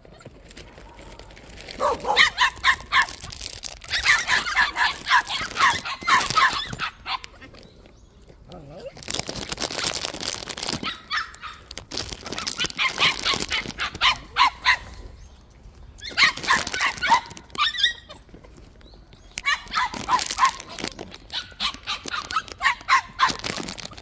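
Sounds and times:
puppies barking and yipping: 0:01.6 - 0:07.9, 0:09.0 - 0:15.3, 0:16.0 - 0:18.6, 0:19.2 - 0:24.0.

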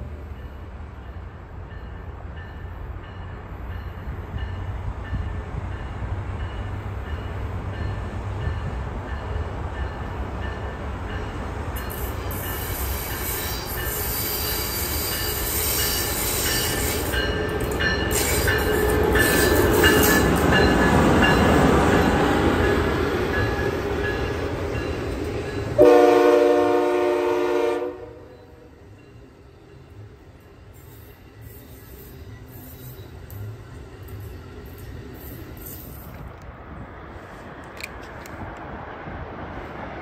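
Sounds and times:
electric train passing: 0:00.0 - 0:40.0
crossing bell dinging: 0:00.3 - 0:26.6.

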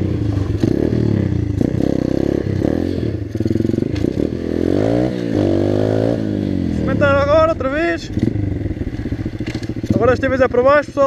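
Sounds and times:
motorcycle engine revving: 0:00.0 - 0:11.0
bike clattering over dirt: 0:09.3 - 0:10.1.

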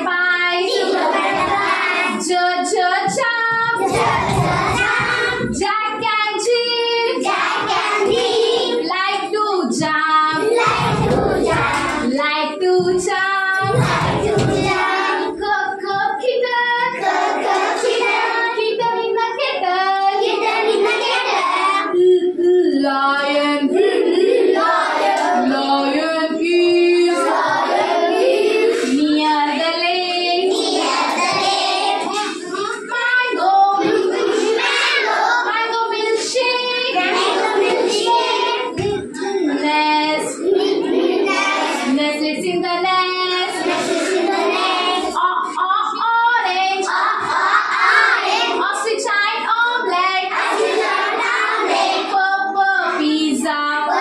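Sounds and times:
children singing in chorus: 0:00.0 - 0:54.0
woman singing: 0:02.2 - 0:03.8, 0:05.5 - 0:07.2, 0:08.8 - 0:10.5, 0:12.0 - 0:14.1, 0:21.9 - 0:23.8, 0:25.4 - 0:27.4, 0:28.9 - 0:30.6, 0:41.9 - 0:43.5, 0:45.1 - 0:46.8, 0:52.1 - 0:54.0.

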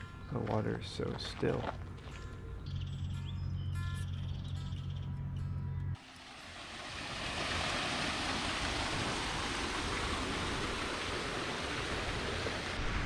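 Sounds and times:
flowing water rushing: 0:06.0 - 0:13.0.

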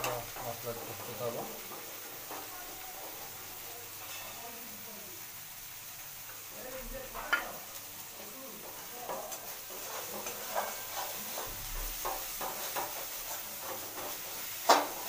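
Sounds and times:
masala sizzling: 0:00.0 - 0:15.0
metal spoon scraping a pot: 0:08.7 - 0:15.0.

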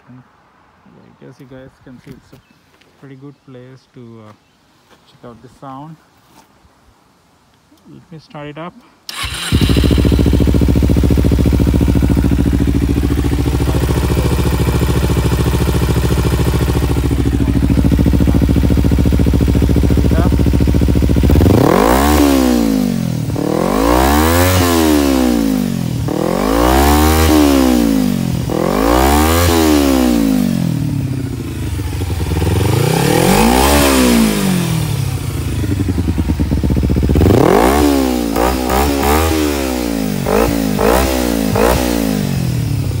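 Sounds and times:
motorcycle engine revving: 0:09.1 - 0:43.0.

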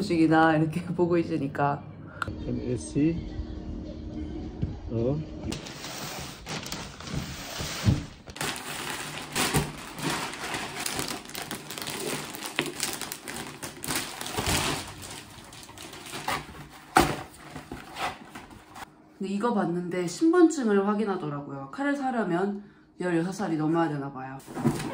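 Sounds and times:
plastic packaging crinkling: 0:05.6 - 0:07.4, 0:08.2 - 0:18.9
cardboard parcels handled: 0:05.6 - 0:18.9, 0:24.4 - 0:24.9.

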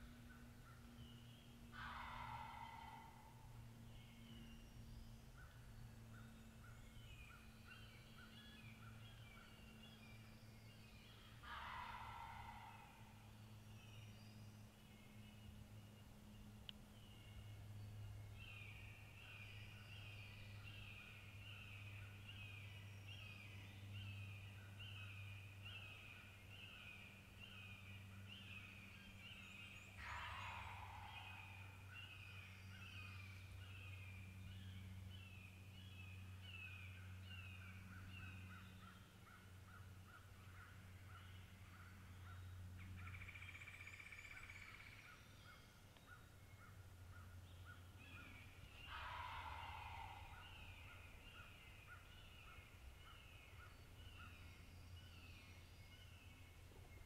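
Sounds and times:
distant turkey gobbling: 0:01.8 - 0:03.2.

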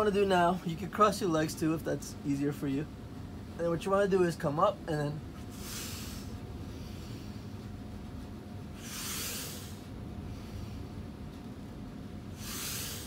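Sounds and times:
man breathing out hard: 0:08.8 - 0:10.9, 0:12.3 - 0:13.0.

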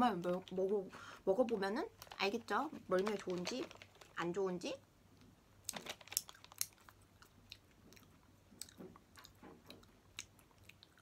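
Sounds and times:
person chewing with lips smacking: 0:06.2 - 0:11.0.

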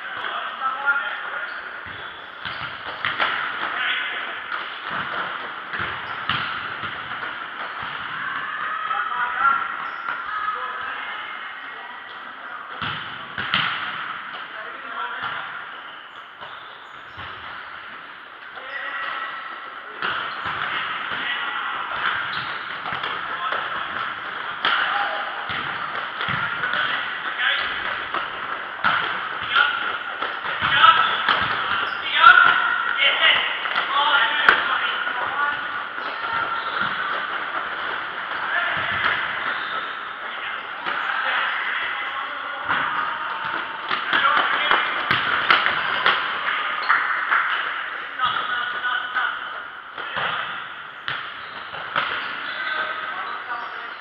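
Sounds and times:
ball bouncing on hard indoor court: 0:01.4 - 0:10.9, 0:12.1 - 0:54.0
ball kicked and thudding: 0:01.8 - 0:03.6, 0:04.9 - 0:08.1, 0:12.8 - 0:14.1, 0:25.5 - 0:29.8, 0:30.4 - 0:32.6, 0:43.9 - 0:46.3
players shouting: 0:07.8 - 0:11.8, 0:20.4 - 0:47.1
players' footsteps: 0:16.4 - 0:53.5.

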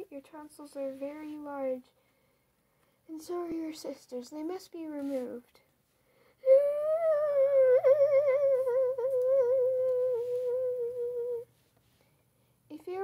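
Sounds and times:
person humming: 0:06.4 - 0:11.5.

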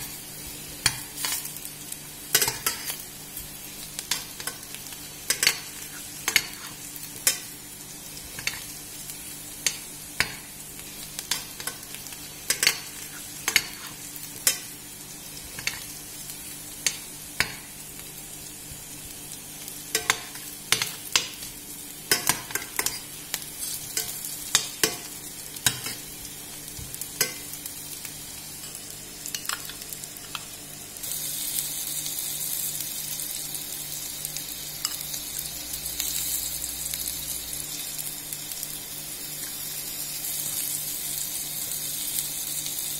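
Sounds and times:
potatoes sizzling in oil: 0:00.0 - 0:42.9.

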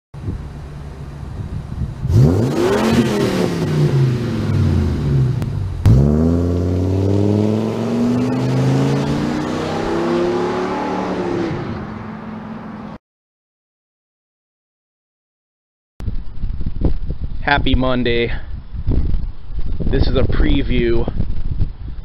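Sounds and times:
van engine accelerating: 0:00.2 - 0:12.0.

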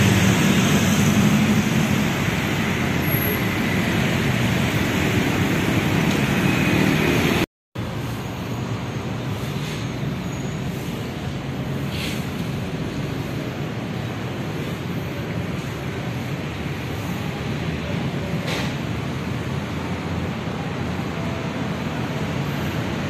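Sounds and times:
steady rushing noise: 0:00.0 - 0:09.6, 0:10.7 - 0:23.0
road traffic: 0:00.0 - 0:23.0.

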